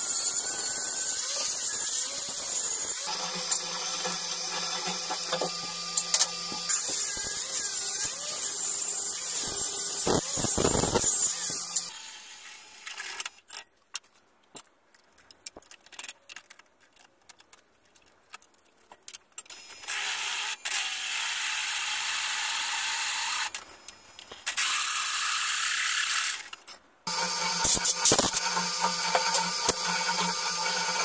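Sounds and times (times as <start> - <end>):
angle grinder grinding steel: 0.0 - 12.7, 27.1 - 31.0
drill press clicks and ticks: 27.4 - 31.0.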